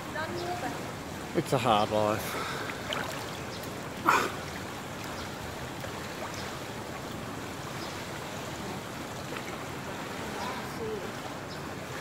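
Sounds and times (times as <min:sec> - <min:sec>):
pool water lapping and sloshing: 0:00.0 - 0:12.0
faint small splashes: 0:02.3 - 0:06.6.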